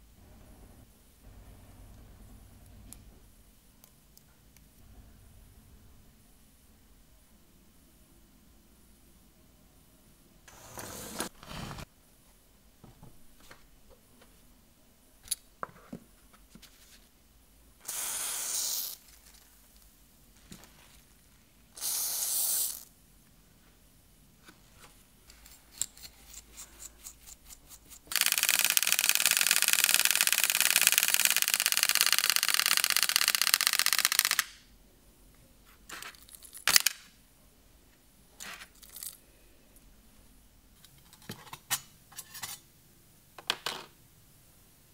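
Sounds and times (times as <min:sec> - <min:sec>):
clockwork motor whirring: 0:28.1 - 0:34.4
ratchet clicks of winding: 0:28.1 - 0:34.6.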